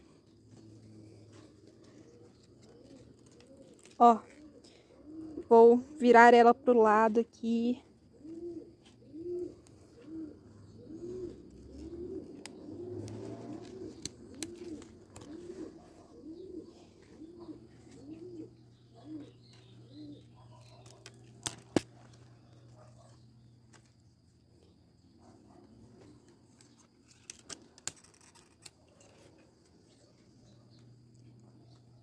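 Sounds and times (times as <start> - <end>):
dove cooing: 0.0 - 6.6, 7.8 - 23.9.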